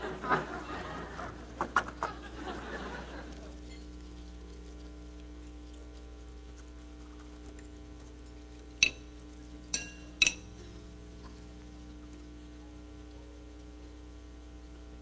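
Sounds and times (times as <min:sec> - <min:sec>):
steady low hum: 0:00.0 - 0:15.0
clinks against china plate: 0:08.8 - 0:09.1, 0:09.7 - 0:10.5.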